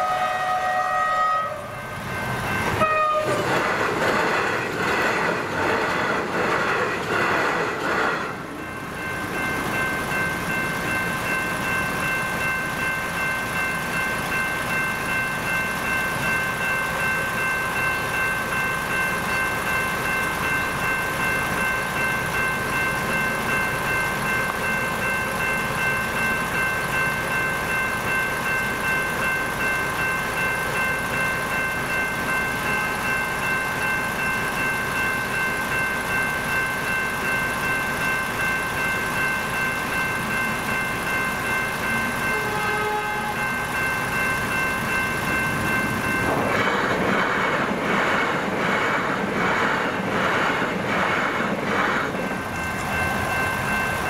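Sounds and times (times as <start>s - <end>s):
electronic level crossing bells: 52.2s - 54.0s.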